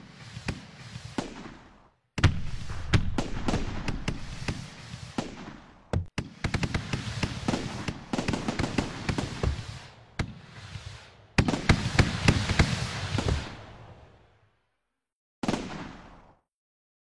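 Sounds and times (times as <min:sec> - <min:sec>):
fireworks popping and banging: 0:00.0 - 0:13.9.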